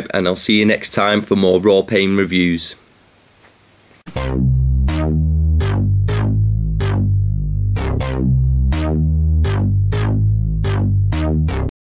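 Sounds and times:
electronic music with drum-machine beat: 0:04.1 - 0:11.7.

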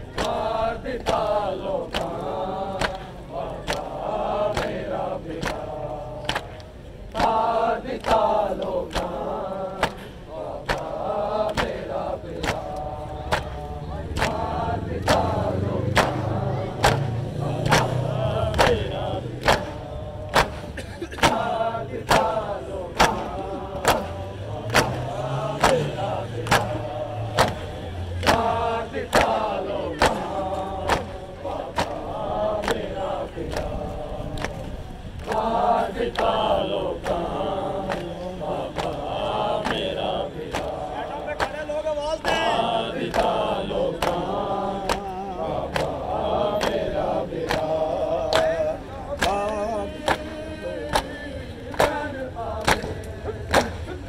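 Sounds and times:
men chanting a lament: 0:00.0 - 0:54.0.

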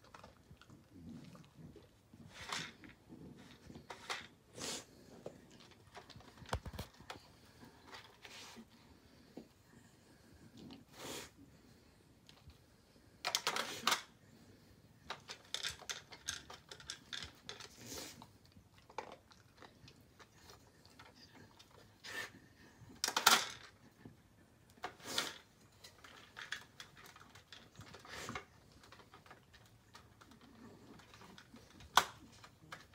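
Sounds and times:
plastic feeder clicking and clattering: 0:13.3 - 0:14.1, 0:15.1 - 0:17.8, 0:23.0 - 0:23.8, 0:24.8 - 0:32.9.

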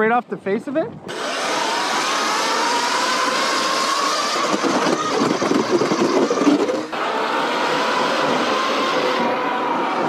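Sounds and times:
small petrol engine running: 0:01.1 - 0:10.0.

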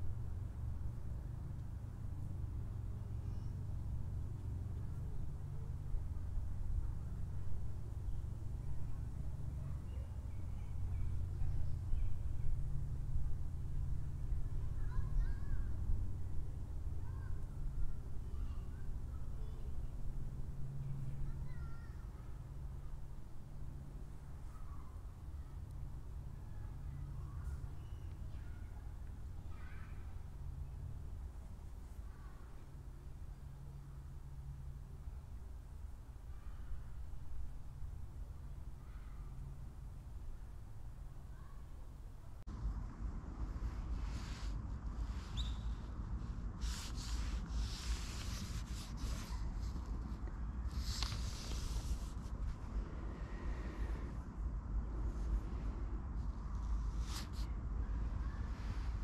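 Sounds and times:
steady low rumble: 0:00.0 - 0:59.0
brush swishing across paper: 0:46.2 - 0:52.6, 0:56.8 - 0:57.5.

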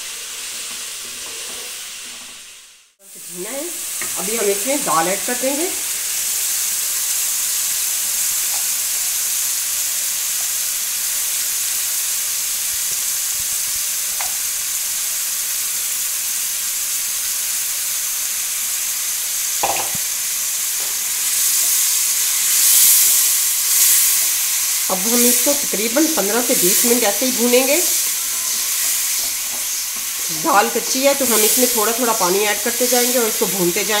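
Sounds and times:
masala sizzling in a wok: 0:00.0 - 0:34.0
knock: 0:19.6 - 0:20.0.

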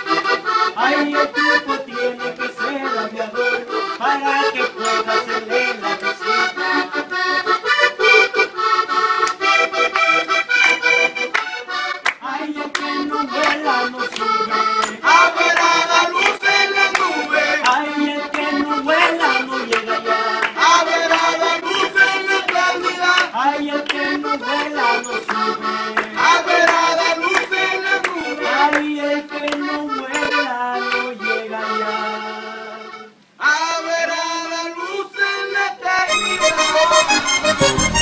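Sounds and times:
button accordion playing: 0:00.0 - 0:38.0
young man singing: 0:00.7 - 0:07.1, 0:12.2 - 0:38.0
hands clapping: 0:09.1 - 0:29.6.

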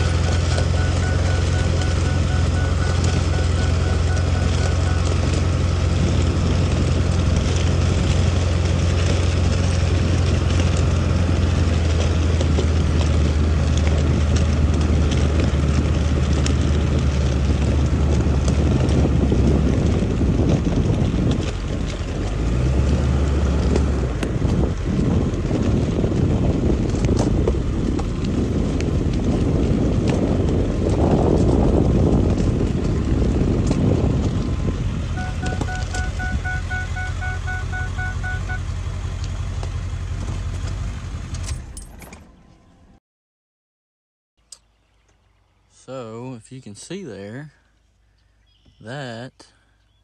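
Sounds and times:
wind buffeting microphone: 0:00.0 - 0:37.3
vehicle engine drone: 0:00.0 - 0:43.0.

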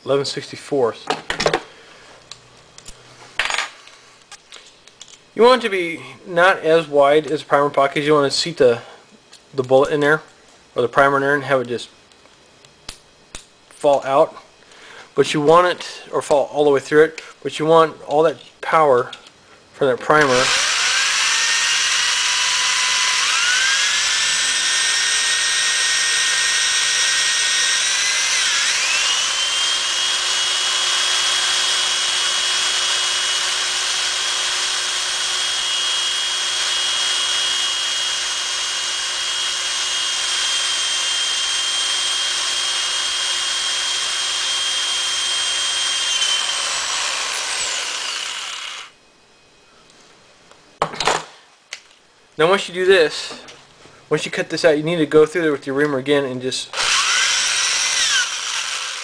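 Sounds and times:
electric drill whining: 0:20.2 - 0:49.0, 0:56.7 - 0:59.0.

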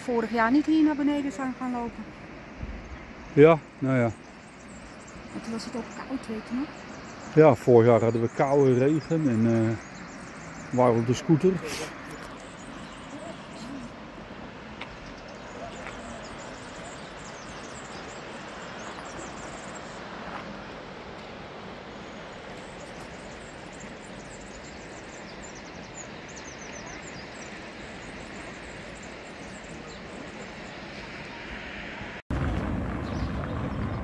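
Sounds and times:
small birds chirping: 0:00.0 - 0:31.9, 0:32.9 - 0:34.0
outdoor rushing noise: 0:29.4 - 0:34.0
low rumble: 0:32.3 - 0:34.0.

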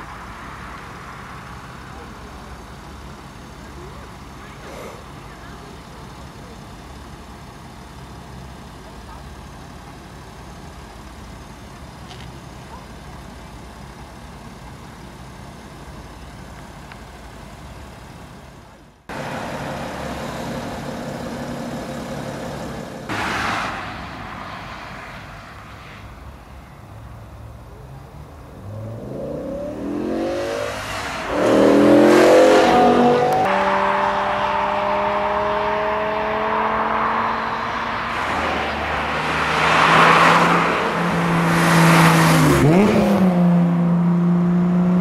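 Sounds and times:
low car engine rumble: 0:00.0 - 0:45.0
road noise: 0:00.0 - 0:45.0
car engine revving hard: 0:28.6 - 0:45.0.

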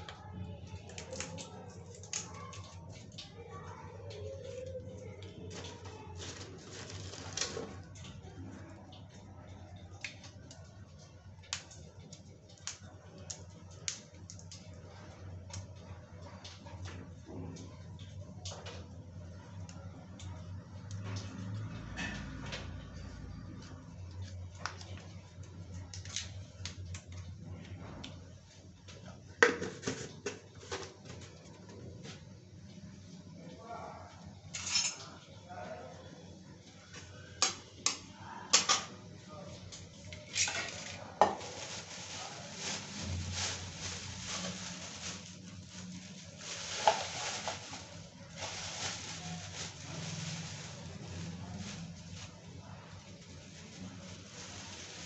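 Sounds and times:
spices crackling in hot oil: 0:08.9 - 0:16.6, 0:41.3 - 0:55.0.

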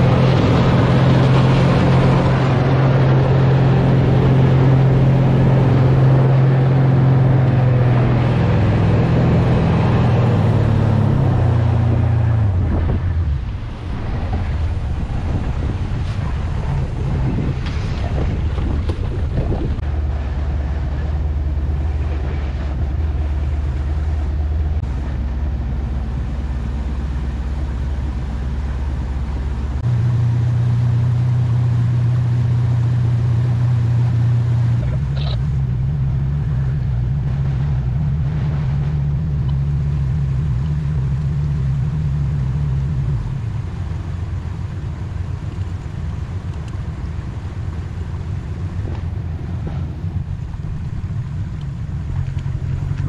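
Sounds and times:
boat engine running: 0:00.0 - 0:53.0
water rushing: 0:00.0 - 0:53.0
wind: 0:00.0 - 0:53.0.

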